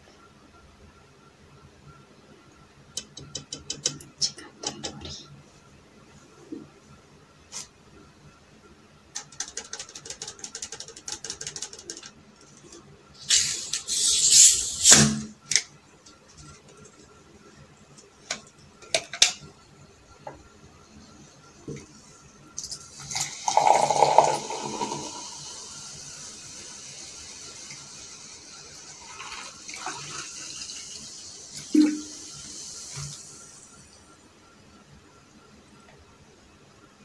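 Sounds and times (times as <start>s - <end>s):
soda poured into glass: 22.9s - 26.1s, 28.9s - 30.4s.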